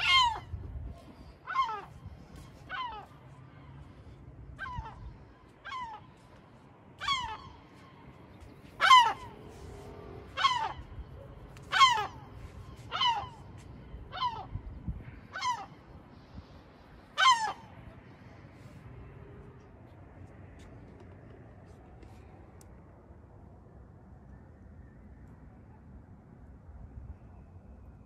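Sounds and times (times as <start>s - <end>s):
gull harsh alarm calls: 0.0s - 0.4s, 8.8s - 9.4s, 10.3s - 10.9s, 11.7s - 12.3s, 12.9s - 13.4s, 14.1s - 14.5s, 15.3s - 15.8s, 17.2s - 17.7s.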